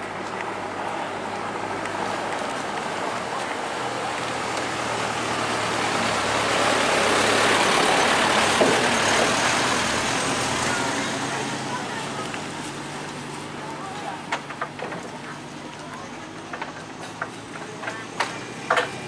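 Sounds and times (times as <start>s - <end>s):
vehicle passing: 0.0s - 19.0s.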